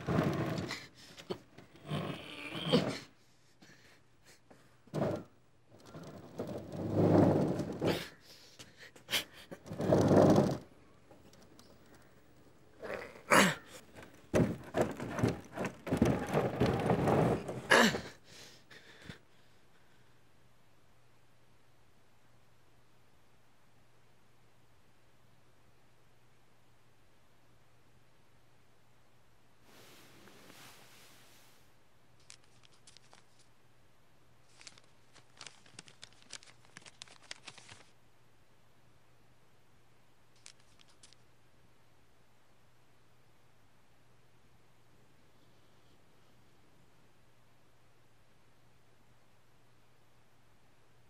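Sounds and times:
scraping and rustling: 0:00.0 - 0:03.1, 0:04.6 - 0:18.2, 0:34.5 - 0:37.9
knocks and thumps: 0:13.8 - 0:18.1
paper crinkling: 0:32.2 - 0:33.5, 0:34.4 - 0:38.0, 0:40.4 - 0:41.2.

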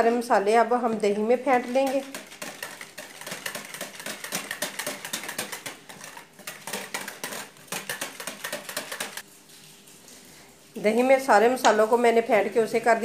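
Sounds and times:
wire whisk beating in plastic bowl: 0:00.9 - 0:09.2.

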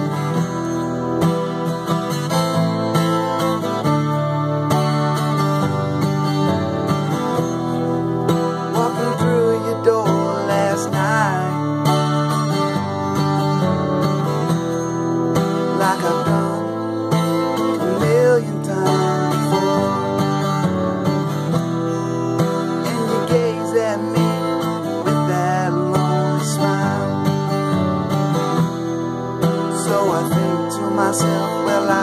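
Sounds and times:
acoustic guitar strumming: 0:00.0 - 0:32.0
man singing: 0:08.5 - 0:12.3, 0:15.4 - 0:20.7, 0:22.6 - 0:27.8, 0:29.4 - 0:32.0.

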